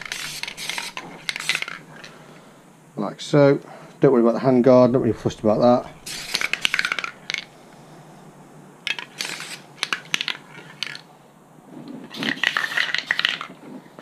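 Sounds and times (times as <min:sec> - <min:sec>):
spray can hissing: 0:00.0 - 0:02.1, 0:06.0 - 0:07.5.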